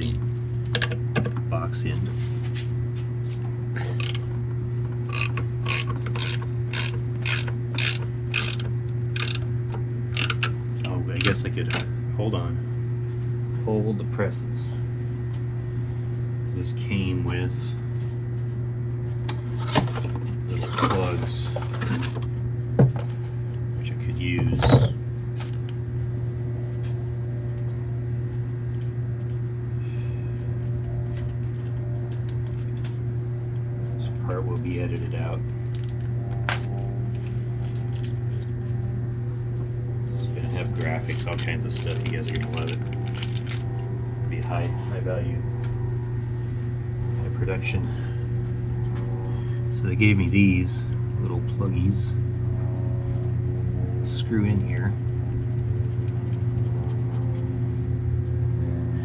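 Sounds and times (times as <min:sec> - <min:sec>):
steady low hum: 0:00.0 - 0:59.0
ratcheting wrench clicking: 0:04.0 - 0:04.2, 0:05.1 - 0:09.4, 0:10.1 - 0:10.5.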